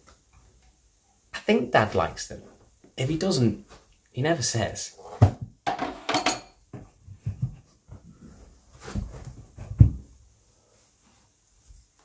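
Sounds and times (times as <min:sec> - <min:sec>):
soft knocks and bumps: 0:06.7 - 0:10.3.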